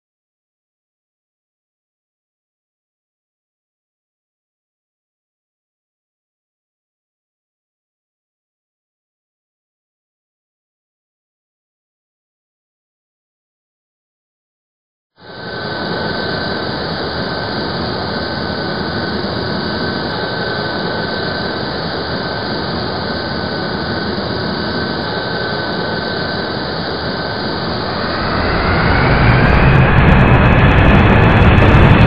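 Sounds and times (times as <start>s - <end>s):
jet engine roar with whine: 15.2s - 32.0s.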